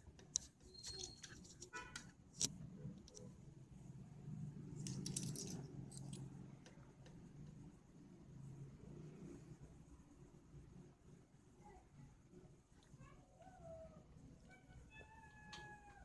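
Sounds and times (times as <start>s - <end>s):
low steady hum: 0.0s - 16.0s
metal coins clinking: 4.8s - 6.3s.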